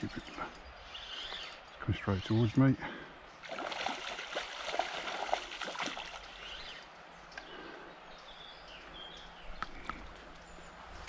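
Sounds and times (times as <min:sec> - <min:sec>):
bird chirping: 0:00.0 - 0:02.7, 0:06.0 - 0:11.0
river water flowing: 0:00.0 - 0:09.5.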